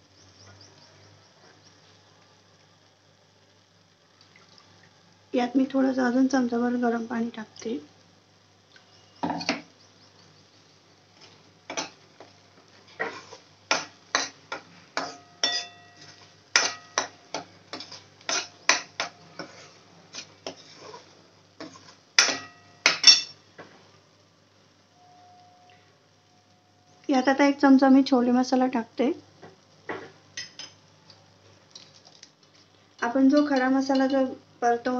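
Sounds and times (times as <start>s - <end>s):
metal ladle clinking on pan: 15.0s - 15.9s.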